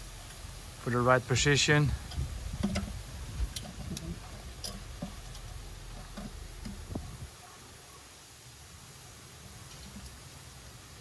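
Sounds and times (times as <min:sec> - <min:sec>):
light clicks and knocks: 0:02.1 - 0:07.1.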